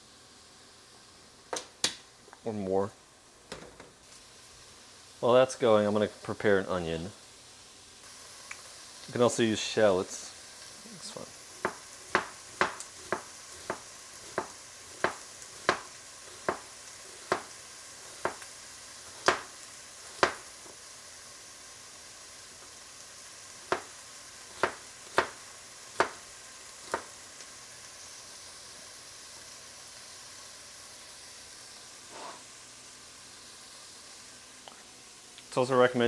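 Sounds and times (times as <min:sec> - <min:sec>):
meat sizzling in a pan: 0:00.0 - 0:36.0
knife chopping onion on board: 0:11.6 - 0:18.4, 0:19.2 - 0:20.5, 0:23.7 - 0:25.4, 0:26.0 - 0:26.2, 0:26.8 - 0:27.1.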